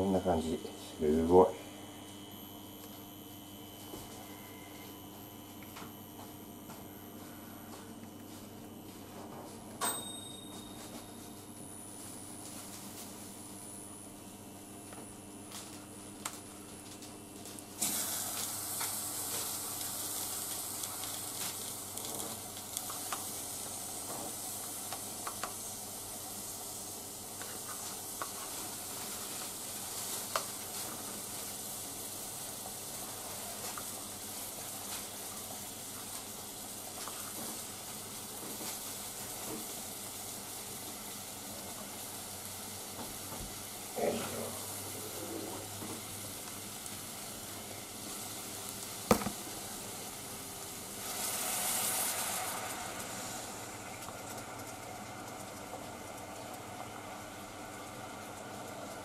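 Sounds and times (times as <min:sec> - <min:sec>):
hot water sizzling: 0:11.8 - 0:59.0.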